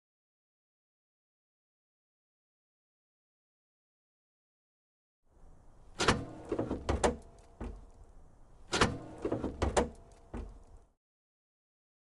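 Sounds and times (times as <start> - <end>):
truck door clunks and thud: 6.0 - 7.9, 8.7 - 10.6
truck door latch click: 6.0 - 7.9, 8.7 - 10.7.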